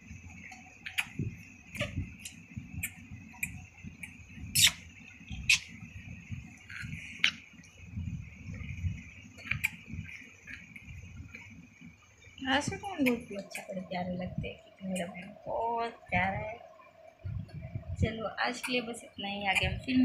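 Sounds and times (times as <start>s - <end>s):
high-pitched hum: 0.0s - 20.0s
low rumble: 5.2s - 11.5s, 13.8s - 18.5s.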